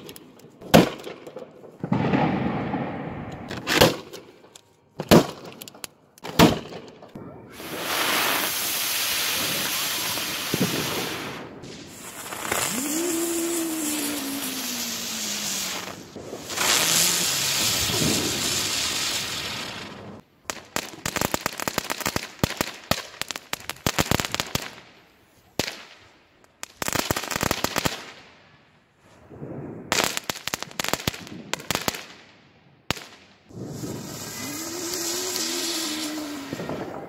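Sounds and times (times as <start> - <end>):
firework crackling: 0.0 - 6.8, 7.5 - 24.9, 29.1 - 32.3, 32.9 - 37.0
spark fountain hissing: 7.7 - 20.0, 33.6 - 36.9.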